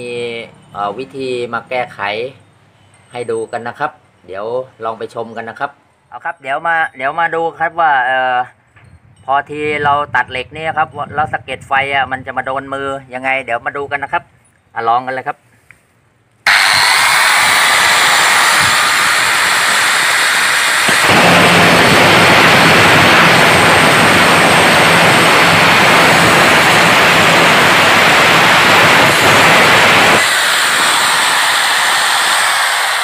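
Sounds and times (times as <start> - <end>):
angle grinder whining: 16.5 - 33.0
grinder cutting steel: 16.5 - 33.0.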